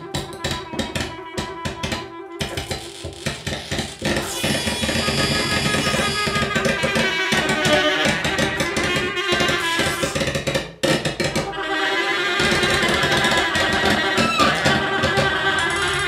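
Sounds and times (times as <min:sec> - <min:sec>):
sustained pitched tones: 0:11.5 - 0:16.0
rapid percussive clicks: 0:12.4 - 0:16.0.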